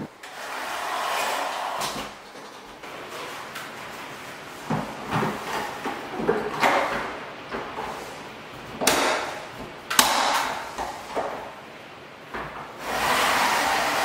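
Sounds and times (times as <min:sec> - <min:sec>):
blind headrail snapping into brackets: 0:08.8 - 0:11.4.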